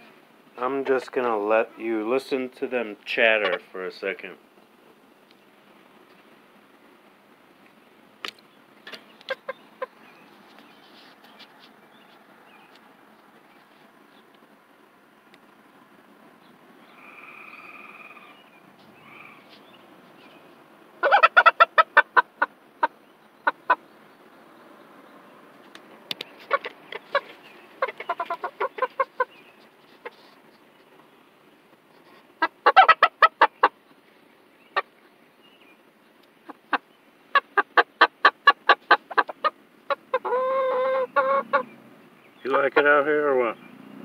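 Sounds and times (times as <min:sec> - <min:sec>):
young chickens clucking: 0:00.6 - 0:02.5, 0:03.2 - 0:03.8, 0:07.6 - 0:14.4, 0:16.4 - 0:24.4, 0:25.7 - 0:31.1, 0:31.7 - 0:43.6
chicken drawn-out call: 0:16.9 - 0:19.6, 0:21.0 - 0:23.8, 0:36.6 - 0:41.8.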